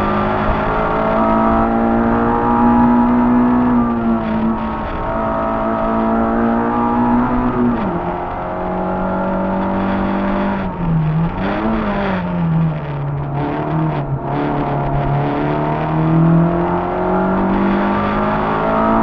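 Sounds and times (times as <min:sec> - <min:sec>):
car engine revving from inside cabin: 0:00.0 - 0:19.0.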